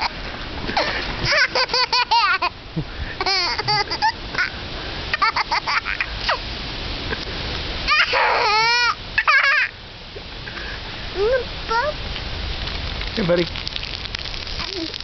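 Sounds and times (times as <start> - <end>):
toddler laughing: 0.8 - 2.6, 3.2 - 4.5, 5.1 - 6.4, 7.9 - 9.8.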